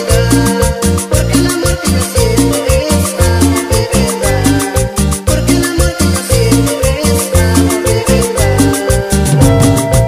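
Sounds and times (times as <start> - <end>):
prominent bass line: 0.0 - 10.0
steady percussion: 0.0 - 10.0
upbeat latin dance music: 0.0 - 10.0.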